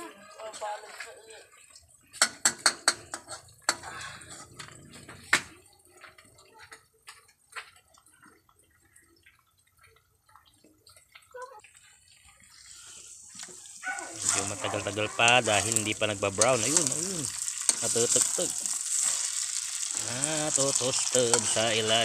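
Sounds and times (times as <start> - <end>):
light frying: 0.0 - 22.0
metal spatula scraping a wok: 2.2 - 5.2, 12.6 - 22.0.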